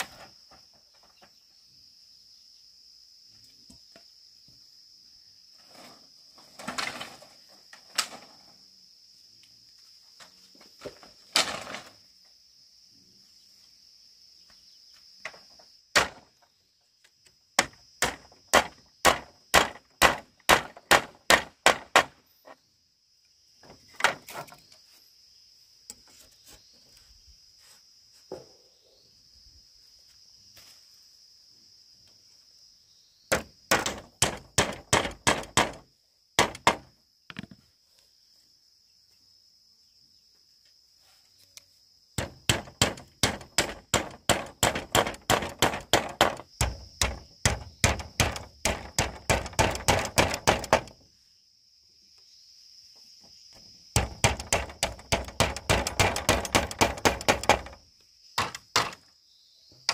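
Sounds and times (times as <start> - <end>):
tool striking bamboo: 15.3 - 16.3, 17.6 - 22.2, 33.3 - 35.8, 36.4 - 37.6, 42.2 - 51.0, 54.0 - 57.8, 58.4 - 59.0.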